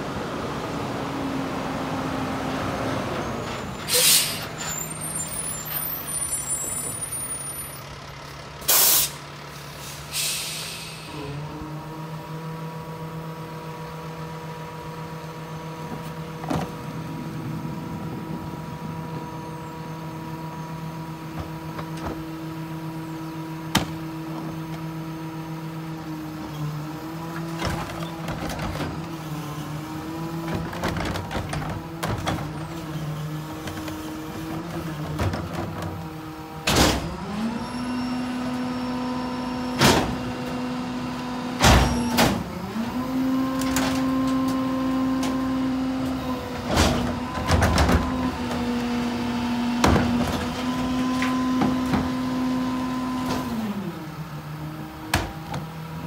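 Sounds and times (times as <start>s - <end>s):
cart banging being dumped: 33.5s - 37.6s, 39.6s - 40.5s, 41.6s - 42.6s, 43.6s - 48.8s, 49.7s - 52.6s
trash bags knocking hopper: 41.6s - 49.0s, 49.6s - 53.6s.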